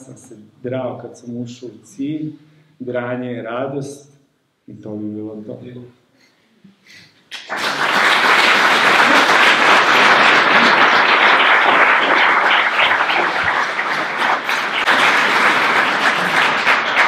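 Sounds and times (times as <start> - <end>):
audience applauding: 7.3 - 17.0.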